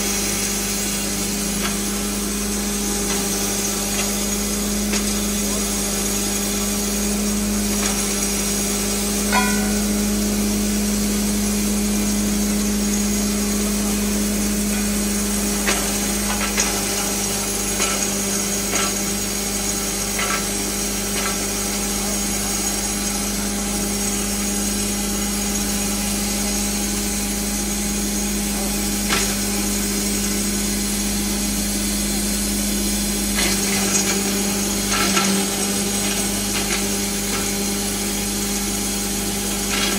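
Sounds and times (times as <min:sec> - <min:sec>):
grinder machine humming: 0:00.0 - 0:39.9
sharp knocks: 0:09.3 - 0:10.1.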